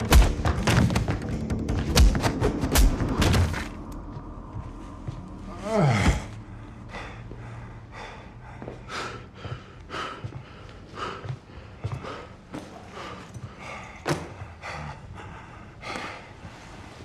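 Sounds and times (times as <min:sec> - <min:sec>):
man breathing heavily: 0:04.1 - 0:17.0
man groaning: 0:05.5 - 0:06.3.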